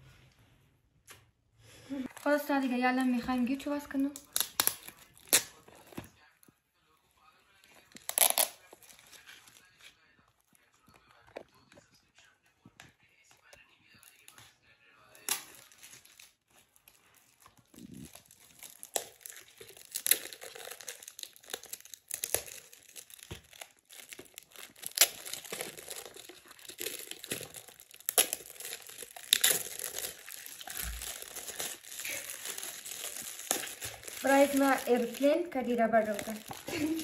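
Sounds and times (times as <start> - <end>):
crinkly wrap peeled off: 2.0 - 6.0, 7.8 - 10.1, 15.2 - 37.0
gift-wrapping paper crinkling and tearing: 2.0 - 6.0, 7.4 - 11.7, 14.1 - 37.0.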